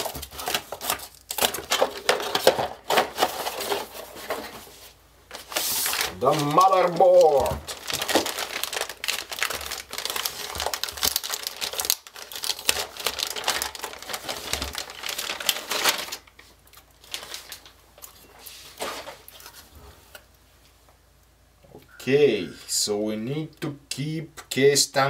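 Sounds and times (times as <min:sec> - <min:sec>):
plastic bag crinkling: 0:00.0 - 0:04.6, 0:05.3 - 0:19.7.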